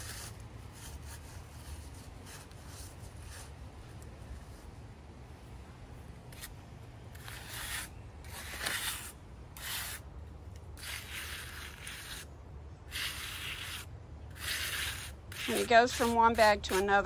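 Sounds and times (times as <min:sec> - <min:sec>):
trowel scraping wet concrete: 0:07.1 - 0:10.0, 0:10.8 - 0:12.3, 0:12.9 - 0:17.0.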